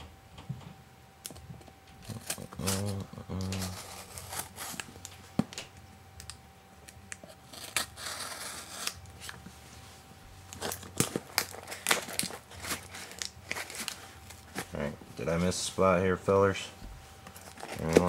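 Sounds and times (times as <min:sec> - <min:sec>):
cardboard tearing: 0:03.6 - 0:04.9, 0:07.4 - 0:09.3, 0:10.6 - 0:14.7, 0:17.4 - 0:18.0
knife cutting packing tape: 0:07.1 - 0:09.4.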